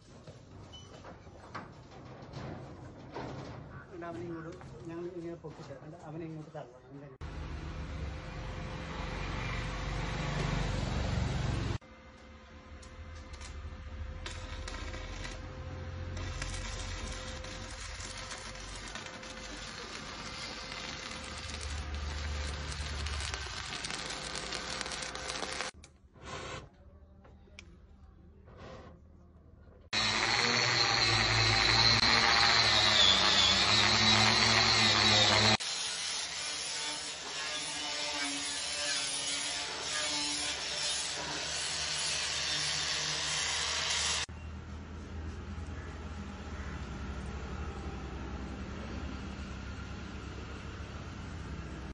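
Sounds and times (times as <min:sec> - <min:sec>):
arc welding crackling: 0:12.8 - 0:25.8, 0:30.0 - 0:44.3
angle grinder grinding metal: 0:14.2 - 0:25.8, 0:30.0 - 0:44.3.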